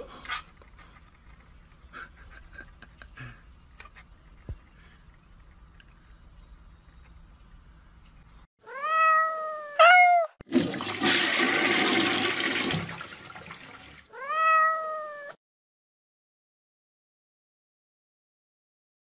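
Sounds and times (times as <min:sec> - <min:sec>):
cat meowing: 0:08.6 - 0:10.4, 0:14.1 - 0:15.4
water splashing: 0:10.4 - 0:14.1.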